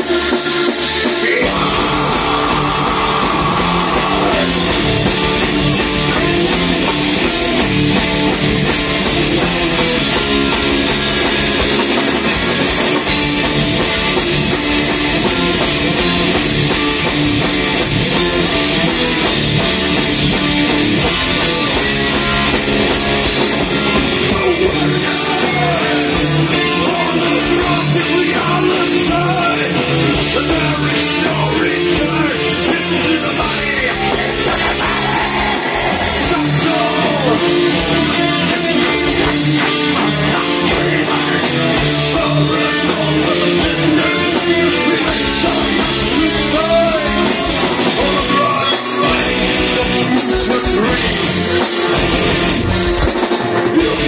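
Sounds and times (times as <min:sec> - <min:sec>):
person singing: 0:00.0 - 0:07.7, 0:24.2 - 0:54.0
live metal band playing: 0:00.0 - 0:54.0.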